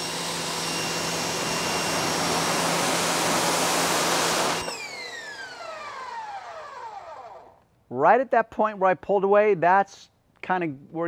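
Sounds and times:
electric motor whine: 0:00.0 - 0:07.6.

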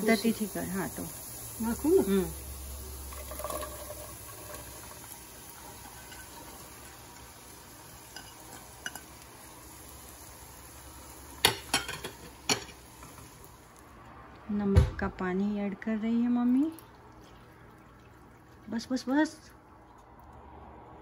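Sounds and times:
vegetables sizzling in hot oil: 0:00.0 - 0:14.1.

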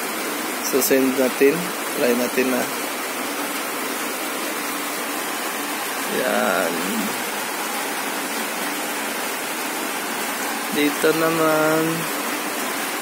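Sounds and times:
steady hiss: 0:00.0 - 0:13.0
person speaking a word: 0:06.1 - 0:07.2, 0:10.8 - 0:12.1.

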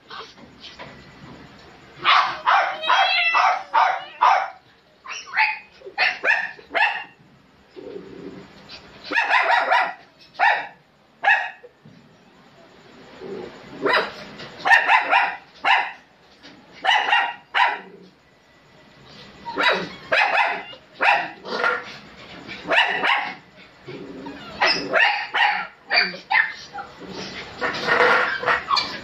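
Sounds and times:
small dog yapping: 0:02.0 - 0:07.1, 0:19.4 - 0:21.9, 0:22.7 - 0:23.4, 0:24.2 - 0:26.9, 0:27.6 - 0:29.0.

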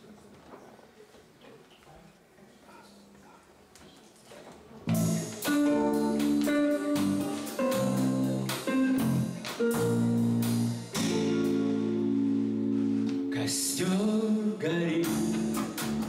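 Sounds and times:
guitars playing jazz ballad: 0:04.9 - 0:16.0.

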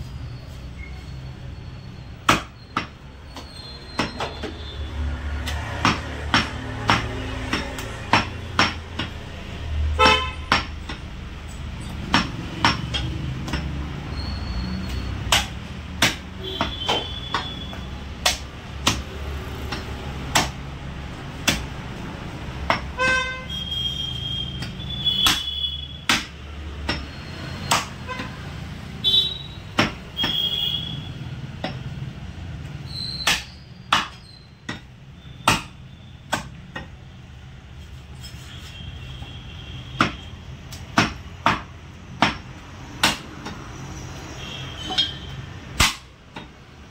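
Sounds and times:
low hum of traffic: 0:00.0 - 0:46.9
cleaver chopping meat on wood: 0:02.2 - 0:09.4, 0:12.0 - 0:14.1, 0:14.7 - 0:23.0, 0:24.4 - 0:29.0, 0:29.7 - 0:32.0, 0:32.6 - 0:37.0, 0:39.8 - 0:43.8, 0:45.7 - 0:46.7
vehicle horn toots: 0:10.0 - 0:10.5, 0:16.4 - 0:17.9, 0:23.0 - 0:26.0, 0:29.0 - 0:29.6, 0:30.2 - 0:31.1.

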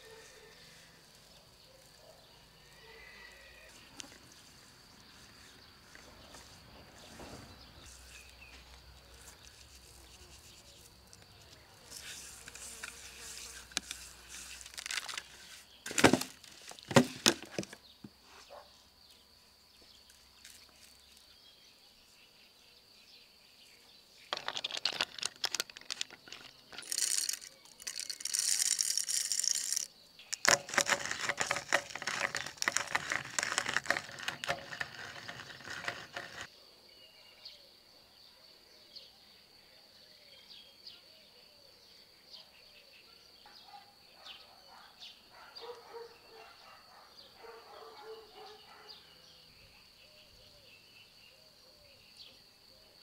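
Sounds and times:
spices shaken from jars: 0:24.4 - 0:36.5.

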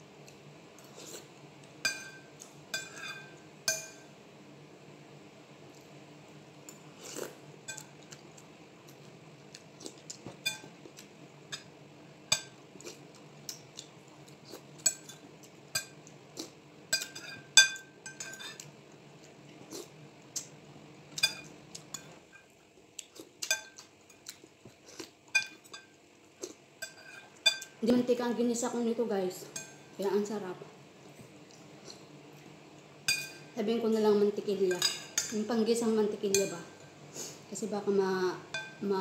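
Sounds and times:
low steady hum: 0:00.0 - 0:39.0
spoon clinking on ceramic bowl: 0:33.1 - 0:33.4.

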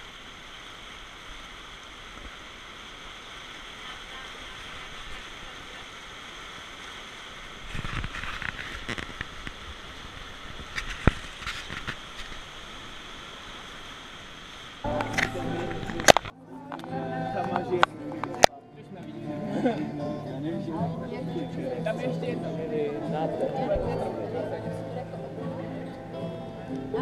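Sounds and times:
water splashing: 0:00.0 - 0:19.7
whitewater rushing: 0:00.0 - 0:27.0.

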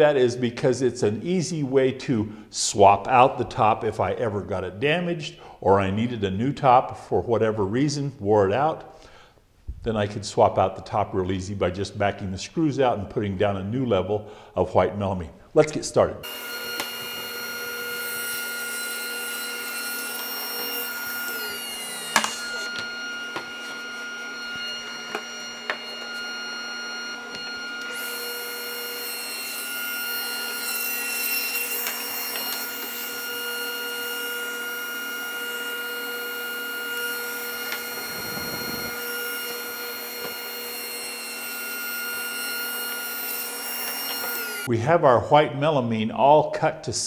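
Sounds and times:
table saw motor whine: 0:16.2 - 0:44.7.

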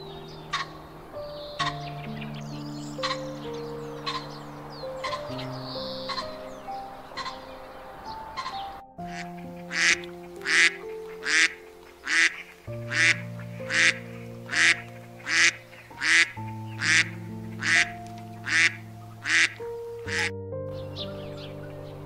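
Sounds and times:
soft background music: 0:00.0 - 0:22.0
duck quacking: 0:09.1 - 0:20.3.

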